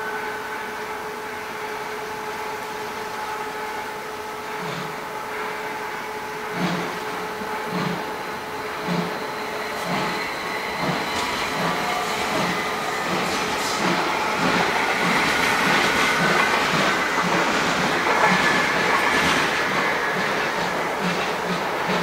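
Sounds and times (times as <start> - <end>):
steam locomotive chugging: 3.5 - 22.0
steam hiss: 6.4 - 22.0.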